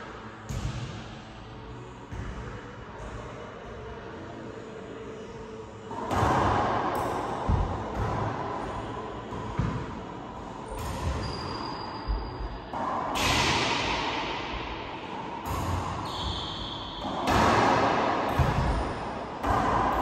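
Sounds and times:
ball smacking racquets and walls: 0:12.7 - 0:20.0.

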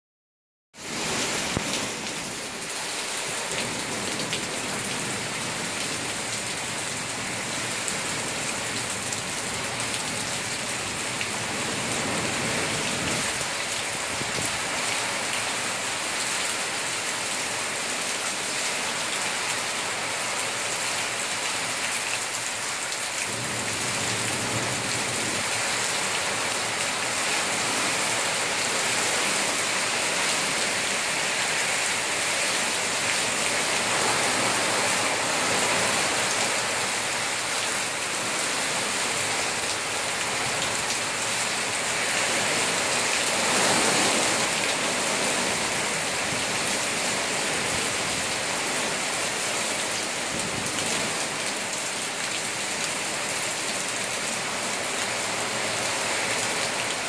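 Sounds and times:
heavy rain on ground and foliage: 0:00.8 - 0:57.0
wind gusts: 0:10.9 - 0:15.2.

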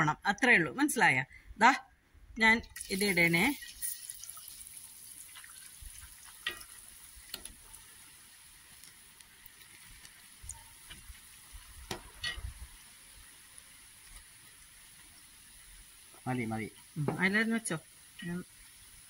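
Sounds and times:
peanuts sizzling in hot oil: 0:02.6 - 0:19.0
steel ladle clinking on pan: 0:11.9 - 0:12.5.

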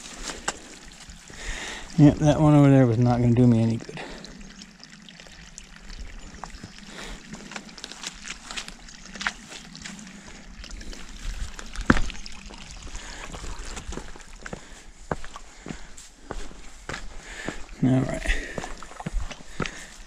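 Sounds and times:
water trickling and sloshing: 0:00.0 - 0:20.0
boots knocking on wood: 0:11.8 - 0:12.2.

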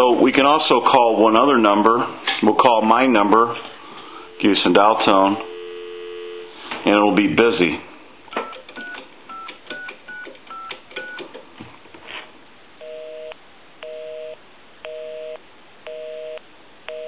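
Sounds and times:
busy signal beeping: 0:04.1 - 0:06.6
touch-tone dialing beeps: 0:08.4 - 0:11.2.

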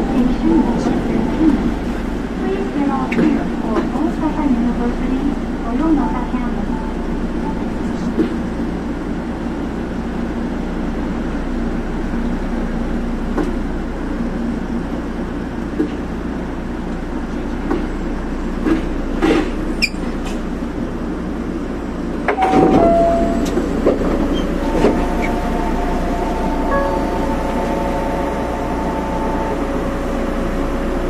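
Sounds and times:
monorail train running hum: 0:00.0 - 0:31.0
high squeal: 0:24.3 - 0:30.2.

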